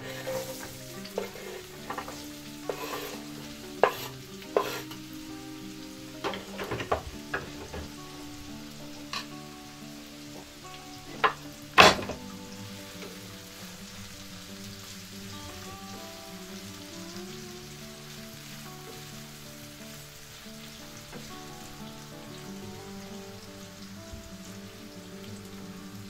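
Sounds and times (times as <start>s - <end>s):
knife and spatula scraping pan: 0.0s - 5.0s
onion sizzling in hot oil: 0.0s - 26.0s.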